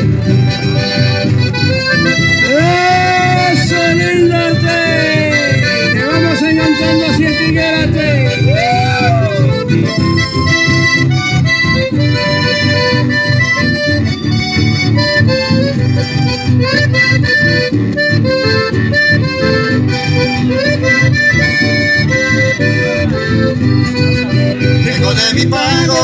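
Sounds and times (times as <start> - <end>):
accordion melody: 0.0 - 26.0
plucked double bass: 0.0 - 26.0
strummed acoustic guitars: 0.0 - 26.0.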